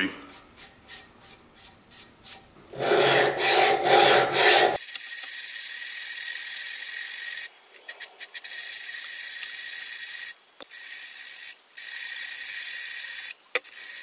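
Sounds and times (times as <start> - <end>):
file scraping steel blade: 0.3 - 4.8.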